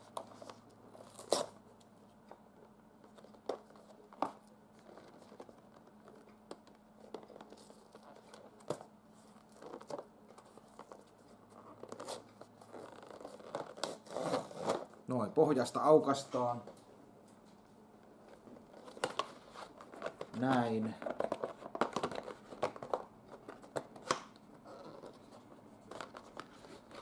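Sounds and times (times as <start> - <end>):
cardboard tearing: 1.0 - 1.6, 11.8 - 14.9.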